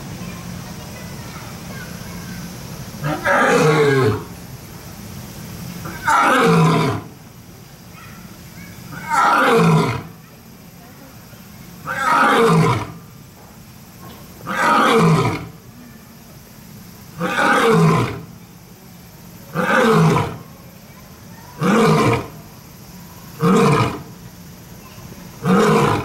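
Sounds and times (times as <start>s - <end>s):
lion roaring: 3.0s - 4.3s, 5.8s - 7.1s, 8.9s - 10.2s, 11.8s - 13.0s, 14.4s - 15.6s, 17.2s - 18.3s, 19.5s - 20.4s, 21.6s - 22.4s, 23.4s - 24.1s, 25.4s - 26.0s.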